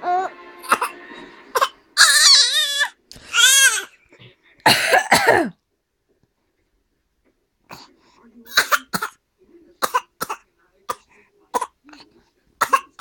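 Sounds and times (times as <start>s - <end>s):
adult coughing: 4.6s - 5.6s
baby squeaky coughs: 4.7s - 5.5s, 8.5s - 9.2s, 12.6s - 13.0s.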